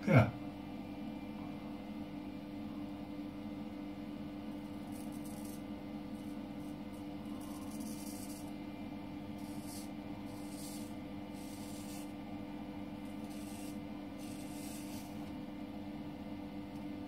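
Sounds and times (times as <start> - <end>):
razor scraping stubble: 4.6 - 8.6, 9.3 - 12.2, 13.0 - 15.3.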